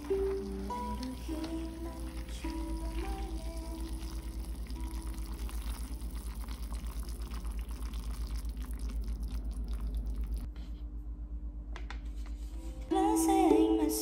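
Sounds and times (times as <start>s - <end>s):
hot water pouring into cup: 0.0s - 10.5s.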